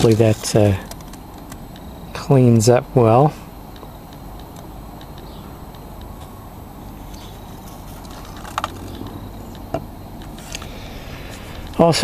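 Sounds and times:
low outdoor rumble: 0.0s - 12.0s
metal case clicks and knocks: 8.3s - 9.9s.

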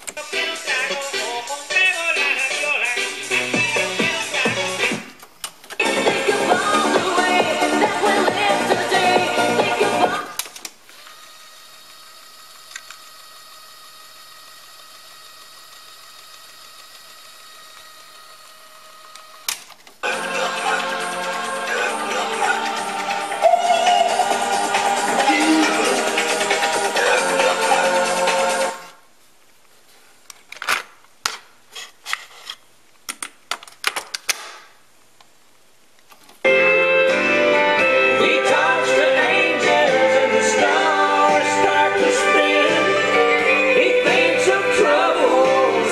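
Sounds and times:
tape hiss: 19.1s - 33.4s, 34.4s - 45.9s.

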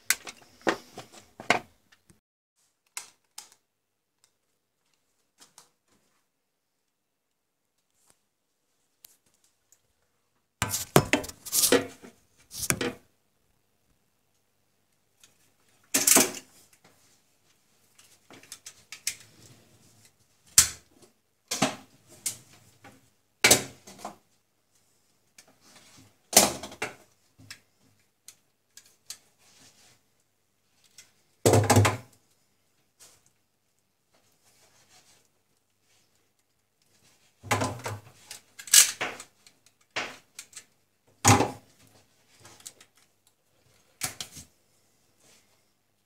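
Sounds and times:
clattering and knocking of small parts: 0.0s - 2.2s, 10.6s - 13.1s, 15.2s - 17.0s, 17.8s - 19.3s, 25.3s - 30.0s, 34.1s - 44.5s.

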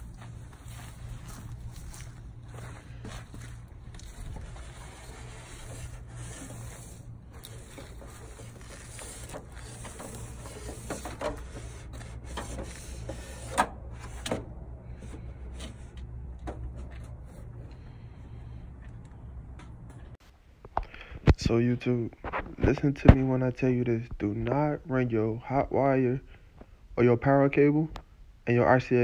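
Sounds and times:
rubbing and scraping: 0.0s - 18.1s
steady low hum: 0.0s - 28.8s.

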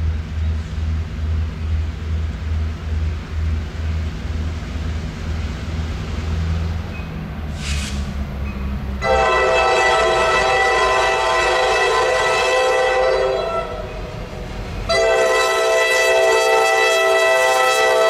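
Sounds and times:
diesel locomotive engine rumble: 0.0s - 18.0s
short hiss: 7.5s - 8.2s.

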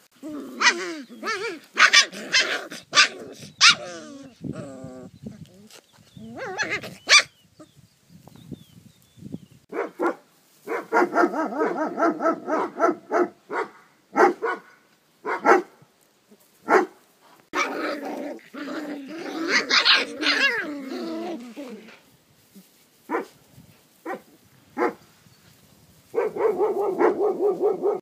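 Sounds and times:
puppies barking in high yaps: 0.5s - 4.1s, 6.3s - 7.4s, 9.7s - 15.7s, 16.7s - 20.8s, 23.1s - 23.4s, 26.1s - 28.0s
puppies crying: 6.2s - 7.3s, 17.6s - 21.4s.

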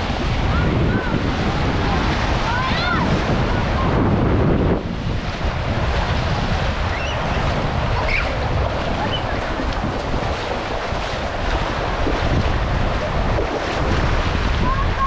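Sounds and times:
wind buffeting microphone: 0.0s - 15.0s
small waves lapping: 4.8s - 15.0s.

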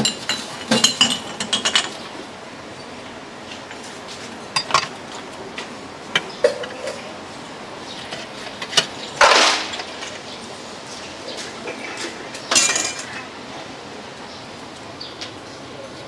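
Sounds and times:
utensils clinking on metal pots: 0.0s - 2.3s, 3.5s - 7.2s, 7.9s - 10.3s, 11.4s - 13.4s.

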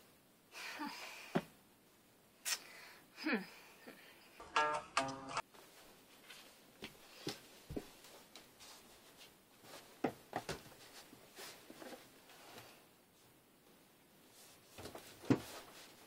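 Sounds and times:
hanging clothes rustling: 5.4s - 16.0s.

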